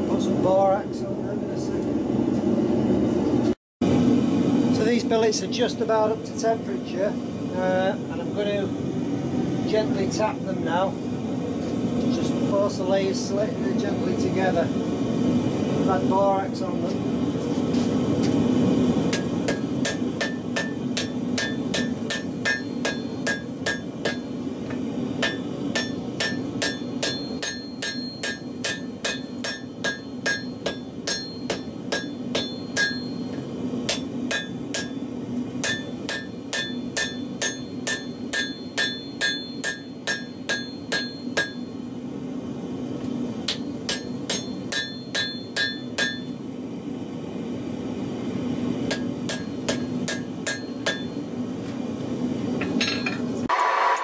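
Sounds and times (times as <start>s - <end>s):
steady low hum: 0.0s - 53.5s
hammer striking steel on anvil: 19.1s - 41.8s, 43.5s - 46.4s, 48.9s - 51.2s, 52.6s - 54.0s.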